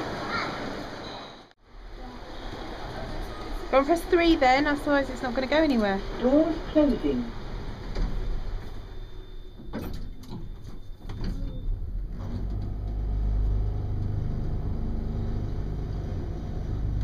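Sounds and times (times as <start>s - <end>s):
lift car humming: 1.7s - 17.0s
lift doors shutting: 5.6s - 17.0s.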